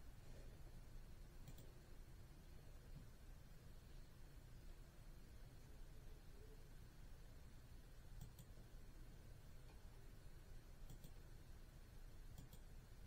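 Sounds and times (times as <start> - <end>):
faint room hiss: 0.0 - 13.0
computer mouse clicking: 1.4 - 1.8, 8.2 - 8.6, 10.8 - 11.3, 12.3 - 12.8.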